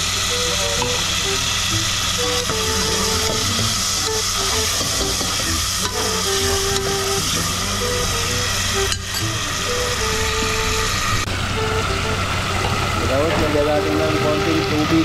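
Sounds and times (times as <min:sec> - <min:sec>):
food sizzling in a pot: 0:00.0 - 0:11.2
simple melody of short notes: 0:00.0 - 0:15.0.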